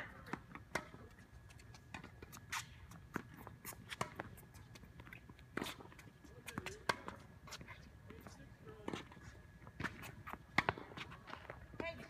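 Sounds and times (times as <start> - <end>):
tennis balls struck with rackets: 0.1 - 1.1, 3.9 - 4.4, 6.4 - 7.3, 9.8 - 12.0
balls bouncing on hard court: 1.9 - 7.2, 9.8 - 12.0.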